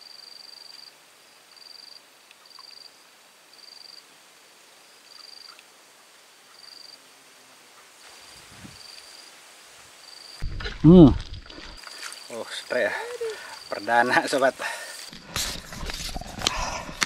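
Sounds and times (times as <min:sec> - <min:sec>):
faint background hiss: 0:00.0 - 0:11.2
insect chirping trills: 0:00.0 - 0:16.8
low rustle: 0:08.0 - 0:12.3.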